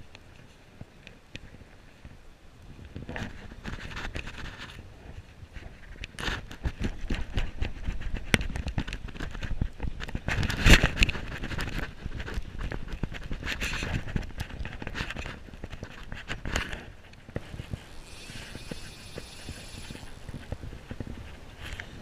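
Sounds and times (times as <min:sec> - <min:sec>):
fly reel clicking: 0:17.4 - 0:20.8.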